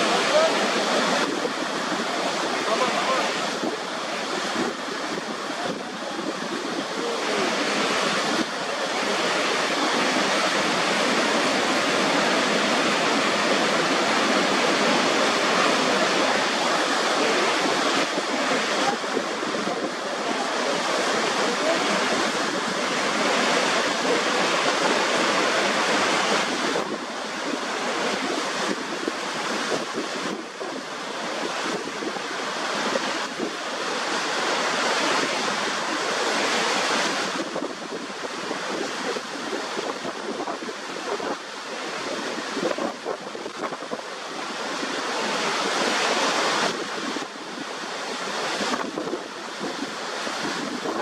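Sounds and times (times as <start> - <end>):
loud rush of falling water: 0.0 - 51.0.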